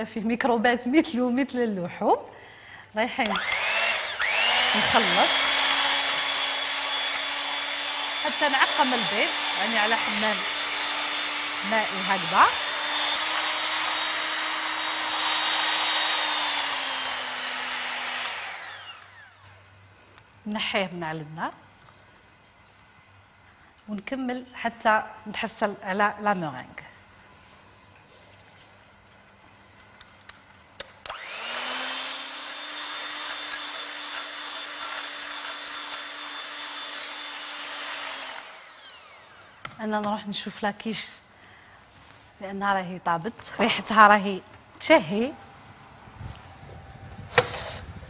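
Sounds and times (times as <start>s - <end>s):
electric hand mixer motor: 3.2s - 19.6s, 31.0s - 39.8s, 47.2s - 48.0s.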